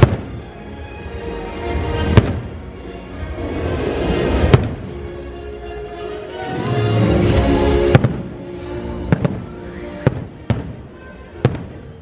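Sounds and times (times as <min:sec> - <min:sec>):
music over loudspeakers: 0:00.0 - 0:12.0.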